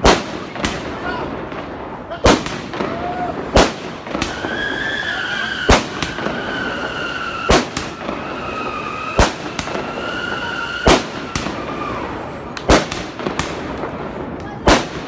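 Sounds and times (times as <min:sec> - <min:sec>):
firework bangs: 0:00.0 - 0:15.0
firework crackle: 0:00.0 - 0:15.0
high whistling tone: 0:04.3 - 0:07.5, 0:09.8 - 0:10.9.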